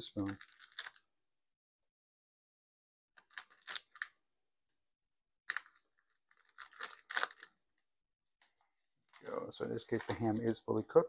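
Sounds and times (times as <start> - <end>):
plastic bag crinkling: 0.2 - 1.0, 3.2 - 4.1, 5.5 - 7.6.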